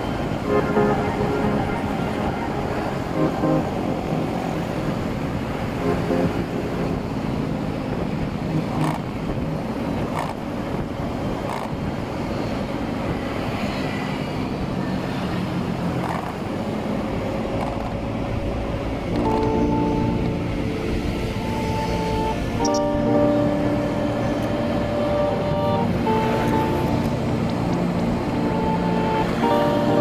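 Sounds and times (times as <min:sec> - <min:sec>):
wind on microphone: 0:00.0 - 0:13.5
scooters passing close by: 0:00.0 - 0:30.0.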